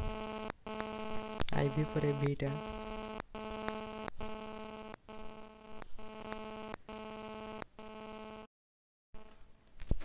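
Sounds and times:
buzzy electrical hum: 0:00.0 - 0:08.5.

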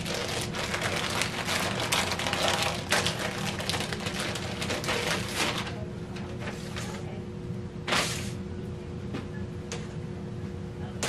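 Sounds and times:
plastic bag crinkling: 0:00.0 - 0:05.8.

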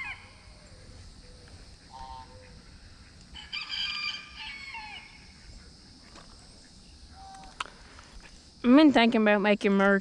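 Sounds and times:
rooster crowing: 0:03.3 - 0:05.3.

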